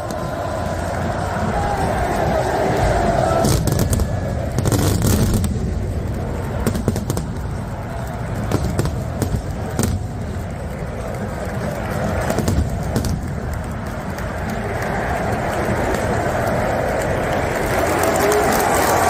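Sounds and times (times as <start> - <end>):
fireworks bangs and pops: 2.6 - 14.4.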